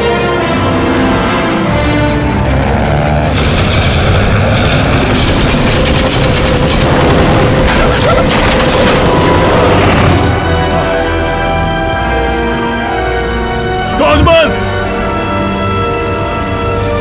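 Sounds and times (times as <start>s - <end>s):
orchestral music: 0.0s - 17.0s
machine-gun fire: 3.3s - 9.8s.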